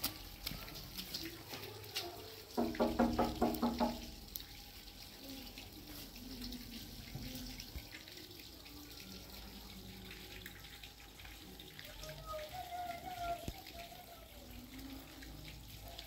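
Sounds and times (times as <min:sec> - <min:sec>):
small water drips: 0:00.0 - 0:16.0
water trickling: 0:00.0 - 0:16.0
child's voice: 0:11.9 - 0:15.3.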